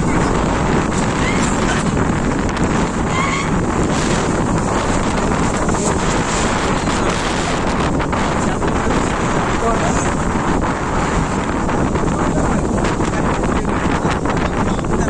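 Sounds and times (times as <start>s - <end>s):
choppy water washing against bank: 0.0s - 15.0s
wind buffeting microphone: 0.0s - 15.0s.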